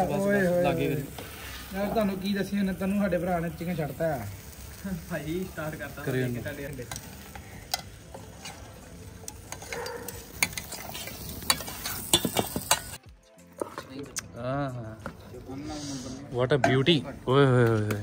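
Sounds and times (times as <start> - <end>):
chicken sizzling with crackling pops: 0.0 - 13.0.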